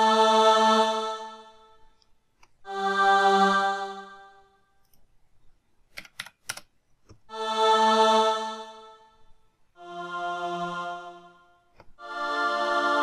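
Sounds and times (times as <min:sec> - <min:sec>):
held choir notes: 0:02.7 - 0:04.5, 0:07.3 - 0:09.2, 0:09.8 - 0:13.0.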